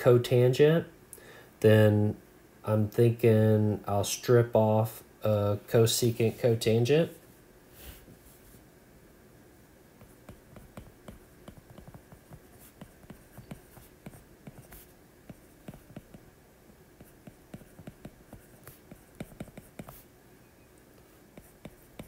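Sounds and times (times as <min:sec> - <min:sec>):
stylus tapping on glass screen: 0:10.0 - 0:13.6.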